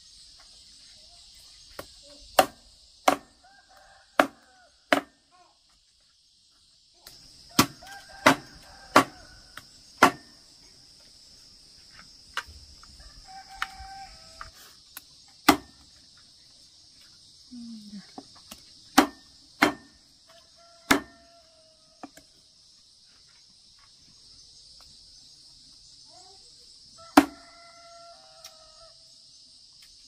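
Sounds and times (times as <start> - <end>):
insect drone: 0.0 - 30.0
cleaver chopping on wooden block: 1.8 - 3.4, 7.6 - 9.2, 10.0 - 10.3, 15.5 - 15.8, 18.9 - 20.0, 20.9 - 21.2.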